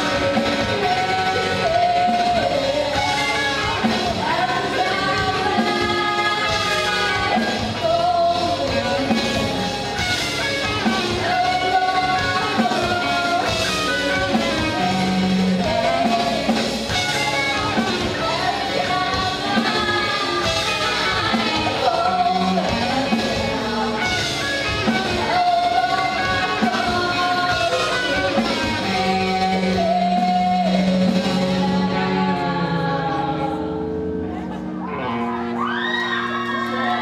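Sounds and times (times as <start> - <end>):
woman singing into microphone: 0.0 - 9.8, 10.8 - 35.5
drum kit: 0.0 - 33.6
electric guitars: 0.0 - 37.0.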